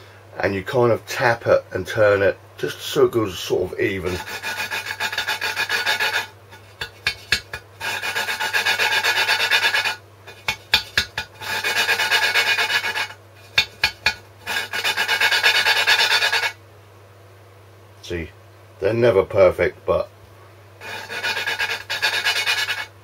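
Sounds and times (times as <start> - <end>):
valve grinding against seat: 20.8 - 22.9.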